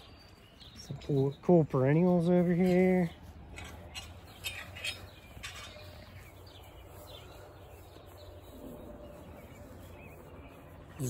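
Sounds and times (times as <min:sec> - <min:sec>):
bird chirps: 0:00.0 - 0:11.0.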